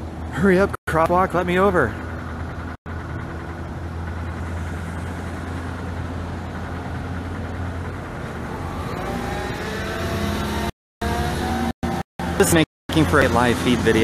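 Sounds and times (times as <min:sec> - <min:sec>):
car engine idling: 0:00.0 - 0:09.8
vehicle accelerating whine: 0:00.0 - 0:14.0.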